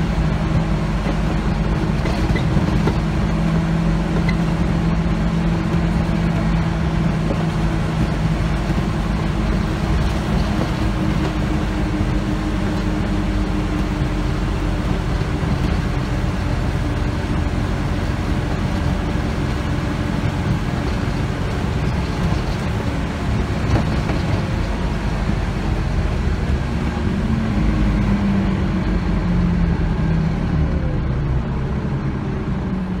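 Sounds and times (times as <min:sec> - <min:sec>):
bus engine drone: 0:00.0 - 0:33.0
road and tyre rumble: 0:00.0 - 0:33.0.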